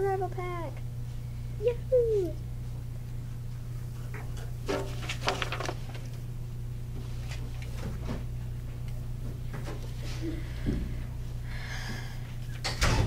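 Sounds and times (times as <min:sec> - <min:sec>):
steady low hum: 0:00.0 - 0:13.0
paper rustles and light knocks: 0:04.6 - 0:06.2.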